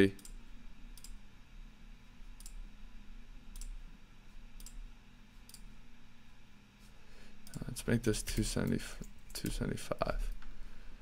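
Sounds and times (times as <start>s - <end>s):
faint low hum: 0.0s - 11.0s
computer mouse clicks: 0.2s - 1.2s, 4.6s - 4.8s.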